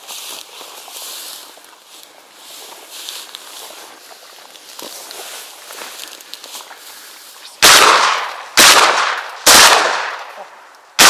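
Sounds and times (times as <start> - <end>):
shotgun shots: 7.6 - 11.0.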